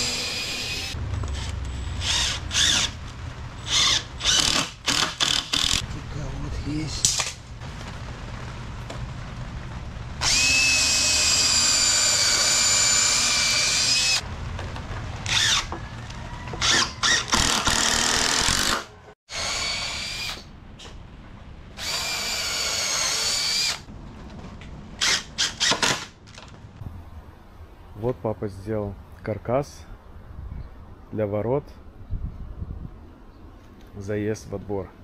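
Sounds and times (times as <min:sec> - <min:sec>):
power drill whining: 0:00.0 - 0:03.0, 0:10.2 - 0:14.2, 0:16.6 - 0:20.4, 0:21.8 - 0:23.8.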